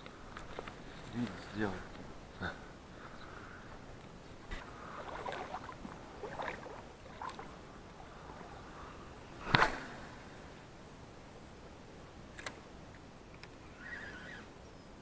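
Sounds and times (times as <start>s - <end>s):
faint steady hiss: 0.0s - 15.0s
waves lapping at shore: 0.7s - 10.8s.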